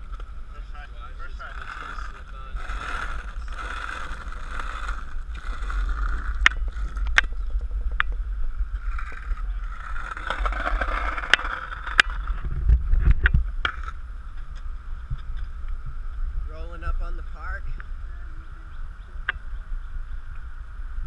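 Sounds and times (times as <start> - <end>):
skateboard wheels rolling on asphalt: 0.0 - 16.6, 17.3 - 21.0
skateboard clacks: 1.6 - 8.2, 8.8 - 12.4.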